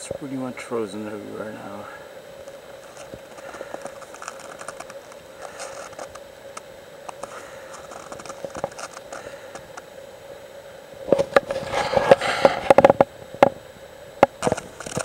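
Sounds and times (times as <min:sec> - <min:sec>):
snowshoes crunching on snow: 0:02.8 - 0:06.2.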